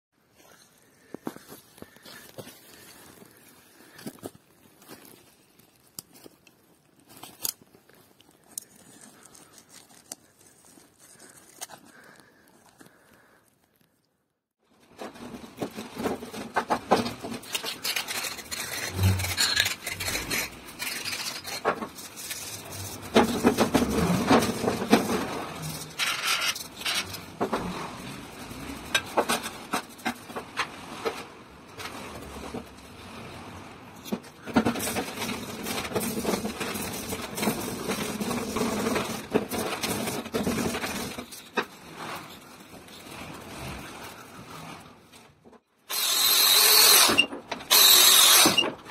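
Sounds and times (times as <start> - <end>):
scraping and rubbing metal: 14.8 - 48.9.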